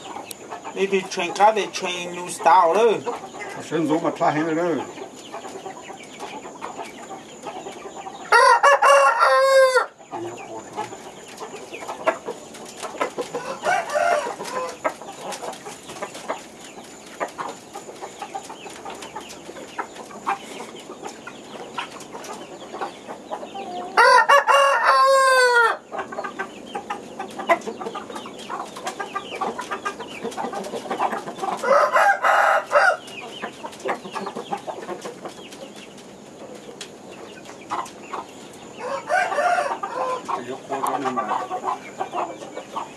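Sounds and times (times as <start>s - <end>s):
rooster crowing: 8.3s - 10.0s, 13.4s - 14.8s, 23.7s - 25.8s, 31.6s - 33.0s, 38.8s - 40.3s.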